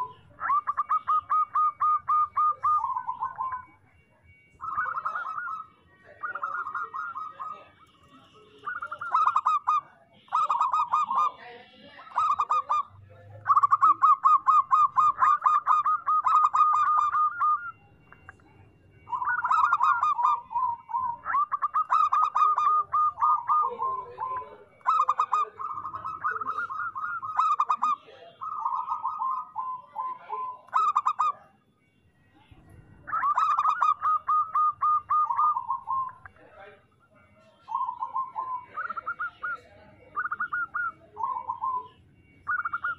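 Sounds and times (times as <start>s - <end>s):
dove cooing: 0.0s - 31.6s, 32.5s - 42.9s.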